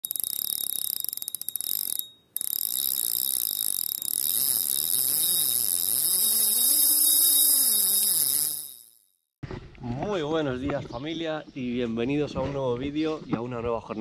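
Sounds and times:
fishing reel drag ratcheting buzz: 0:00.0 - 0:09.1.

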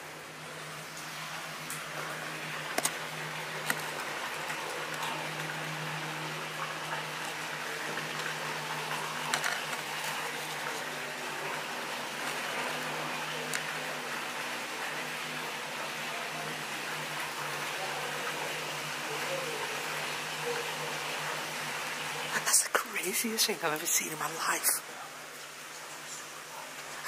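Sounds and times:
churning water: 0:00.0 - 0:27.0.

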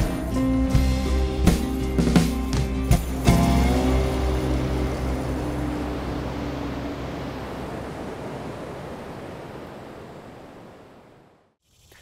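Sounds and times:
low background music notes: 0:00.0 - 0:07.2
wind: 0:00.0 - 0:12.0
rushing water: 0:03.1 - 0:12.0.

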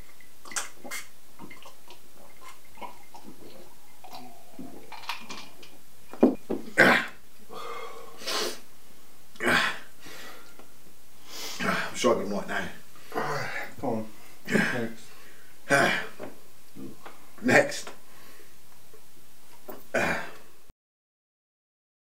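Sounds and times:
men swallowing drink: 0:00.2 - 0:08.5
heavy breath out: 0:06.8 - 0:08.6, 0:09.4 - 0:10.6, 0:11.2 - 0:11.8, 0:19.9 - 0:20.5.

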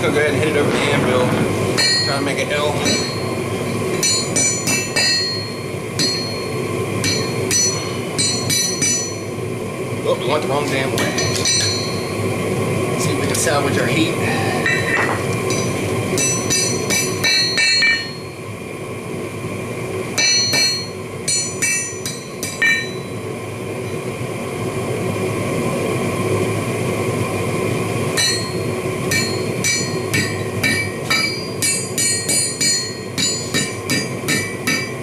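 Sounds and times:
hammer striking steel on anvil: 0:01.8 - 0:03.2, 0:03.9 - 0:09.2, 0:11.0 - 0:12.0, 0:14.6 - 0:18.3, 0:20.2 - 0:23.1, 0:28.2 - 0:35.0.

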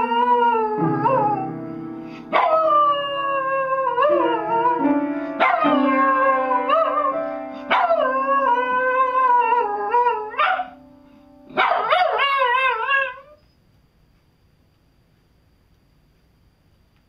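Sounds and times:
dog howling: 0:00.0 - 0:01.5, 0:02.3 - 0:10.8, 0:11.6 - 0:13.4
piano notes: 0:00.0 - 0:11.6.

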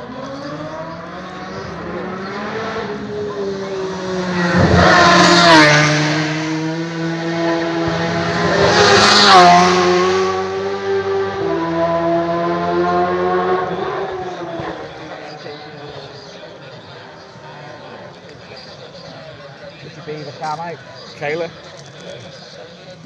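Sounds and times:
racing motorcycles passing at full throttle: 0:00.0 - 0:18.1.

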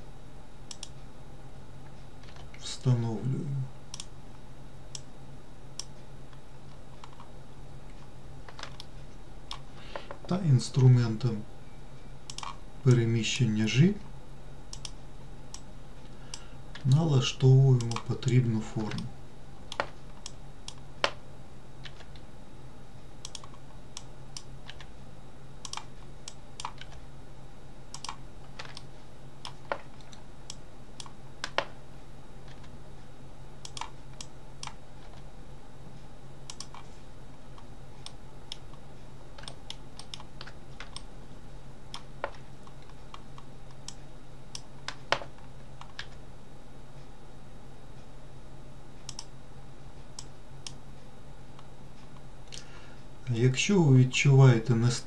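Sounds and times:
low electrical hum: 0:00.0 - 0:55.0
keyboard and mouse clicking: 0:00.7 - 0:01.0, 0:03.9 - 0:04.1, 0:12.3 - 0:12.6, 0:14.7 - 0:15.6, 0:17.8 - 0:19.1, 0:19.7 - 0:21.2, 0:23.2 - 0:24.9, 0:25.6 - 0:27.0, 0:27.9 - 0:31.7, 0:33.6 - 0:35.2, 0:36.5 - 0:36.9, 0:39.4 - 0:41.1, 0:49.0 - 0:49.3.

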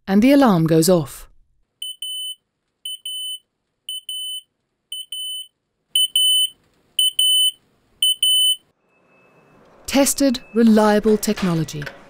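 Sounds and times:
smoke alarm beeping: 0:01.8 - 0:08.6.

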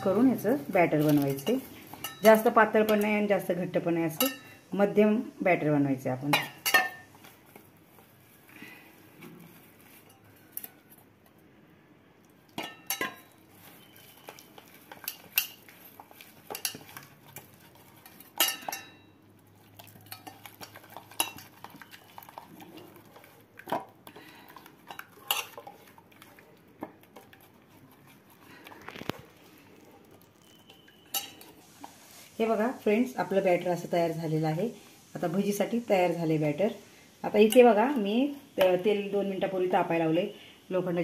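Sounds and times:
fingers clinking on steel bowl: 0:01.0 - 0:03.2, 0:12.6 - 0:19.2, 0:30.4 - 0:31.5
batter stirring by hand: 0:06.3 - 0:11.1, 0:12.5 - 0:34.2.

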